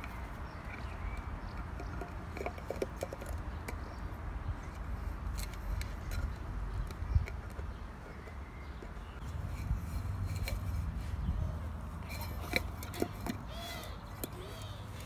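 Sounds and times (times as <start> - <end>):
puppy chewing tin can: 0.6 - 3.8, 12.0 - 13.5.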